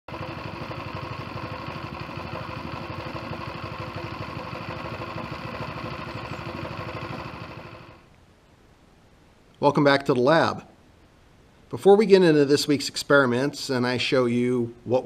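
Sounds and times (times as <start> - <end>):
engine shaking mounting board: 0.1 - 8.0
small engine running: 0.1 - 8.0.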